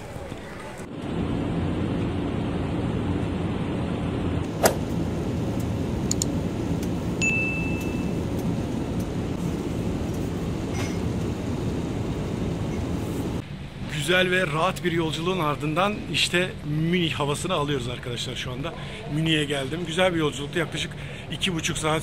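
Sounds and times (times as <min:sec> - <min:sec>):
airplane cabin noise: 0:00.0 - 0:13.8
sharp click: 0:06.1 - 0:06.9
high cabin chime: 0:07.2 - 0:08.4.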